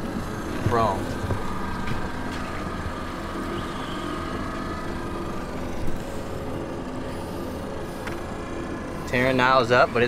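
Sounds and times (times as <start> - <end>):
outboard motor humming: 0.0 - 10.0.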